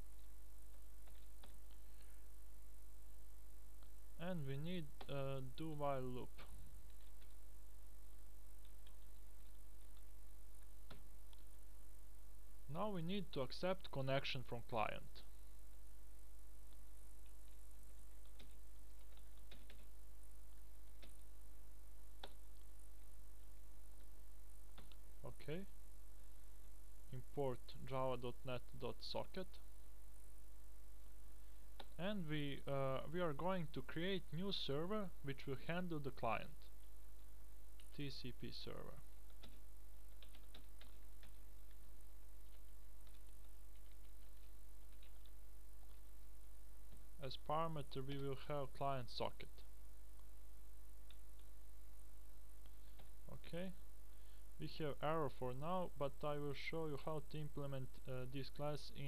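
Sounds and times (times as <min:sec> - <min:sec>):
low electrical hum: 0:00.0 - 0:59.0
keyboard typing: 0:01.0 - 0:01.8, 0:08.6 - 0:10.1, 0:16.7 - 0:19.9, 0:39.2 - 0:46.1.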